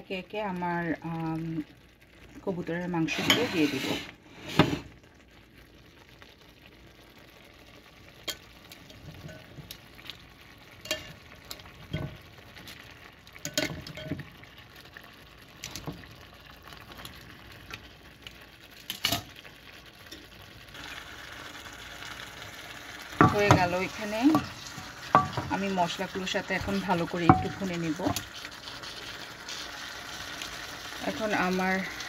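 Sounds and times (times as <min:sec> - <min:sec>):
frying sizzle in a pan: 0:00.0 - 0:32.0
utensils clicking and knocking on pan: 0:08.3 - 0:09.8, 0:10.8 - 0:12.3, 0:13.4 - 0:14.3, 0:15.6 - 0:16.1, 0:18.8 - 0:19.4, 0:23.2 - 0:29.6.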